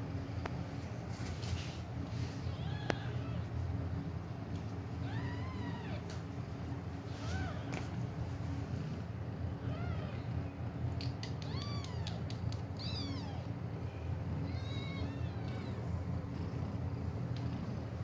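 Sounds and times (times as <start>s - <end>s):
faint clicks: 10.9s - 12.9s
kitten mewing: 11.0s - 13.5s.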